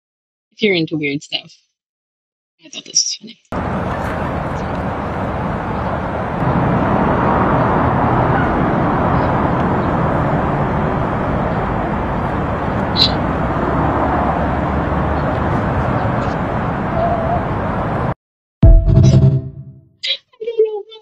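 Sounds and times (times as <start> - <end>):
street traffic noise: 3.5 - 18.2.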